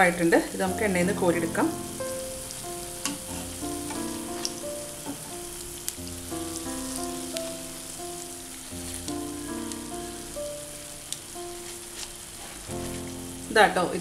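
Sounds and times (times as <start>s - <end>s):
background music of held notes: 0.0s - 14.0s
deep-frying sizzle: 0.0s - 14.0s
utensils clicking on pan: 3.0s - 5.4s.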